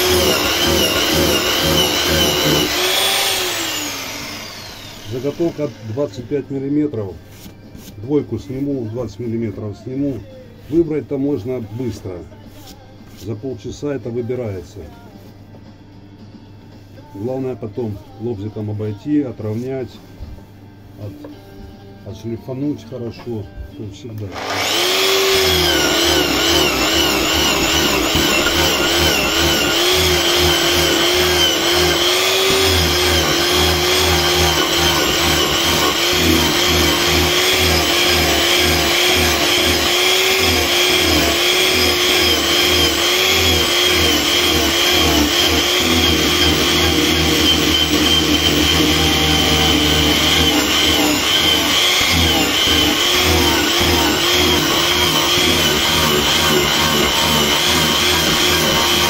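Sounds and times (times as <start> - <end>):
angle grinder cutting wood: 0.0 - 6.4, 24.3 - 59.0.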